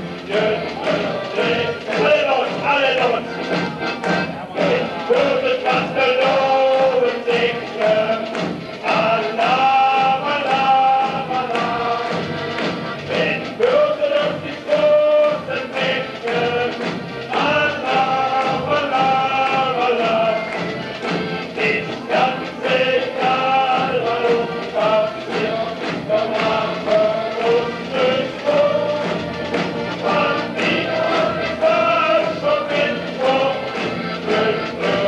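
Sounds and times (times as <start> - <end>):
band with steady beat: 0.0 - 35.0
group of voices singing: 0.0 - 35.0.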